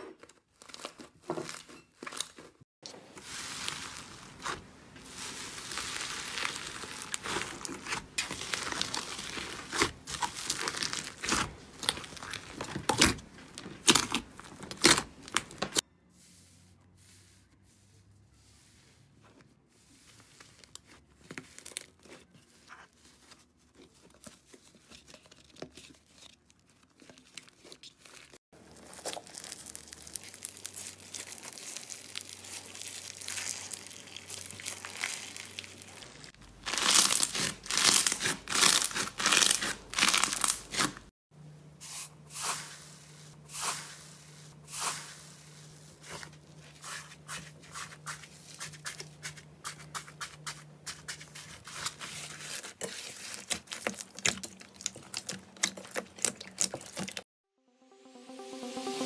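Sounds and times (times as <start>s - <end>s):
hands squishing slime: 3.2s - 15.8s, 26.8s - 41.0s, 41.9s - 57.2s
slime crust crunching: 3.2s - 15.8s, 20.7s - 41.1s, 42.3s - 57.2s.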